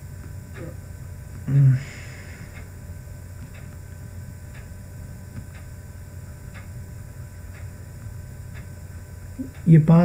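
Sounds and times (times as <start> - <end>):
electrical hum: 0.0 - 10.0.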